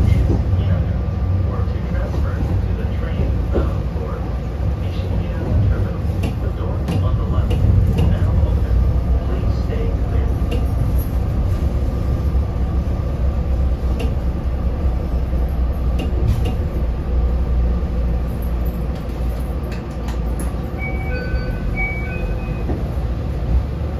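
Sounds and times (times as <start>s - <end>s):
train wheels and motor rumbling: 0.0s - 23.9s.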